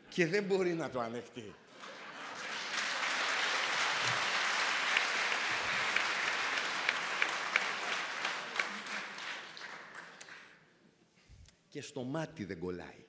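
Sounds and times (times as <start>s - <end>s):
audience applauding: 1.7s - 10.6s.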